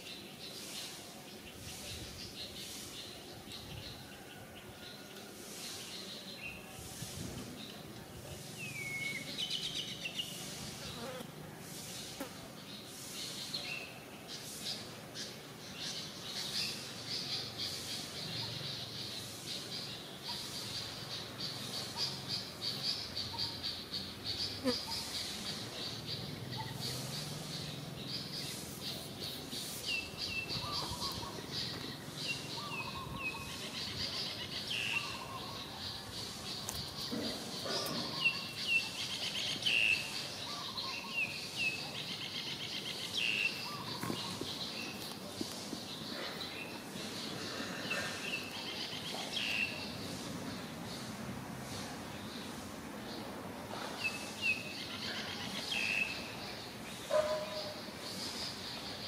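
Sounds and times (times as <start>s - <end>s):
insects buzzing: 23.7s - 33.7s.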